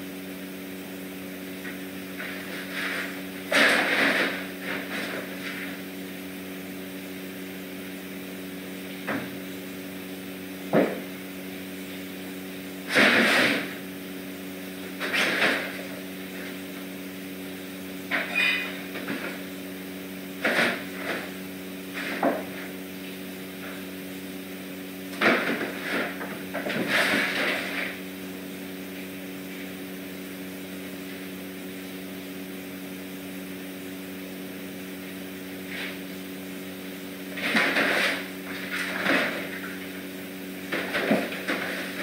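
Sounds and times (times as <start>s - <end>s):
room equipment hum: 0.0s - 42.0s.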